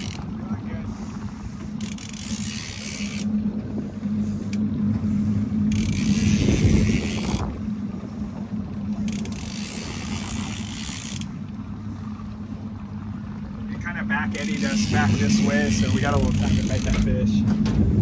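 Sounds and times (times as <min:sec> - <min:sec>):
fishing reel whirring: 0:00.0 - 0:00.3, 0:01.7 - 0:04.7, 0:05.4 - 0:08.0, 0:08.8 - 0:11.4, 0:14.3 - 0:17.3
outboard motor idling: 0:00.0 - 0:18.0.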